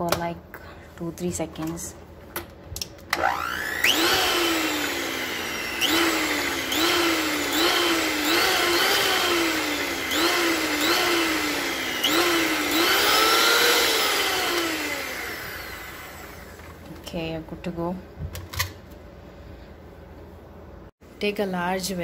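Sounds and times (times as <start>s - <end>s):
electric hand mixer whining: 3.2s - 16.8s.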